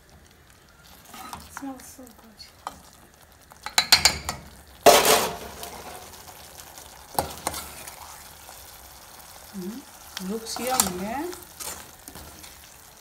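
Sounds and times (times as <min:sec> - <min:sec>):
curry sizzling: 0:00.0 - 0:13.0
wooden spoon stirring in metal pot: 0:10.2 - 0:13.0.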